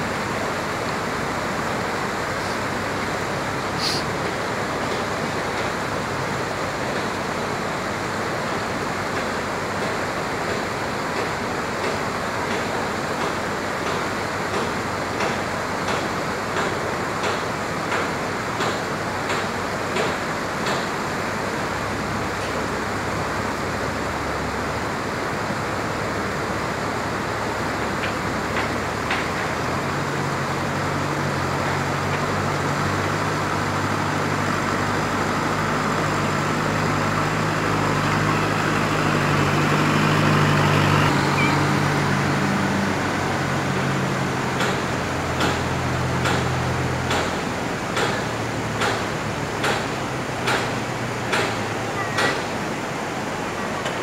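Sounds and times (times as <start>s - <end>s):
rushing river water: 0.0s - 54.0s
truck diesel engine: 0.0s - 54.0s
sharp knocks: 44.6s - 52.5s.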